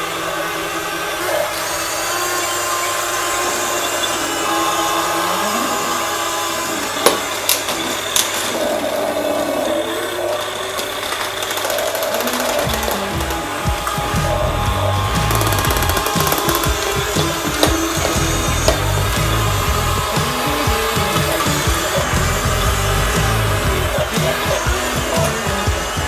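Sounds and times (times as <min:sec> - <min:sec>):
small electric motors whining: 0:00.0 - 0:26.0
plastic arms knocking together: 0:10.4 - 0:26.0.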